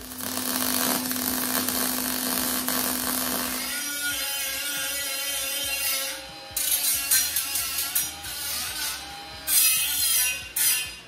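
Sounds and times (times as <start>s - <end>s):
arc welding crackle: 0.0s - 10.9s
welder hum: 0.0s - 11.0s
background music: 3.3s - 11.0s.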